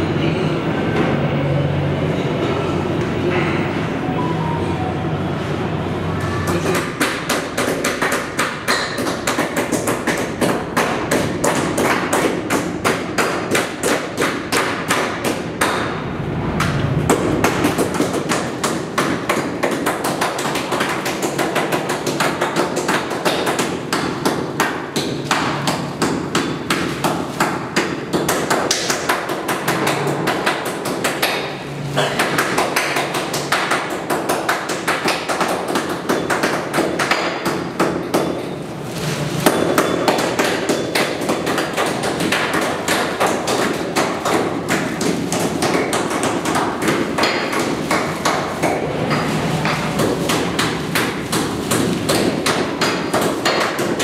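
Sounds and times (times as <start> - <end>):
meat cleavers chopping: 6.2 - 16.0, 16.6 - 54.0.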